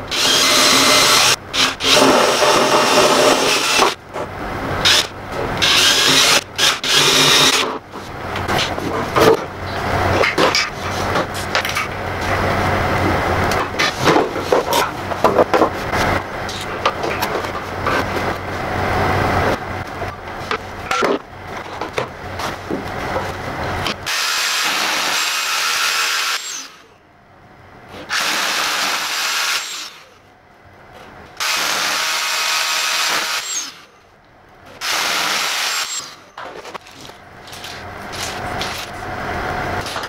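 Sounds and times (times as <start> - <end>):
rotary hammer drilling into wall: 0.1 - 4.0, 4.8 - 7.8, 28.1 - 30.1, 31.4 - 33.9, 34.8 - 36.2
knocking and scraping: 6.9 - 12.4, 13.0 - 18.4, 20.1 - 24.0.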